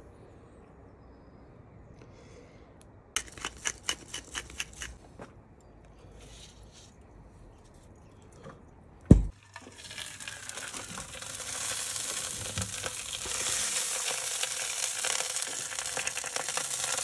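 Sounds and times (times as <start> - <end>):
thump: 9.1 - 9.3
meat fat sizzling on a grill: 9.4 - 17.0.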